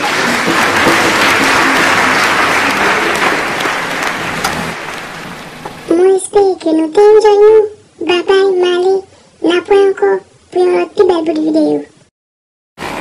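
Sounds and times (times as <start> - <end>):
crowd applause: 0.0 - 5.9.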